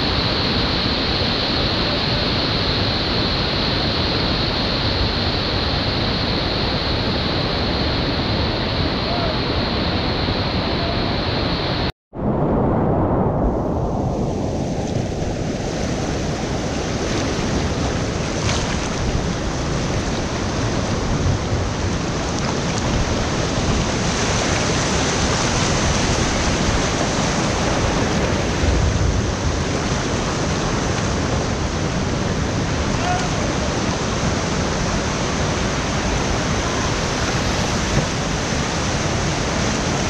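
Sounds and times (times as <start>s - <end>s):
river rapid rushing water: 0.0s - 11.9s, 14.8s - 40.0s
wind buffeting microphone: 12.1s - 40.0s.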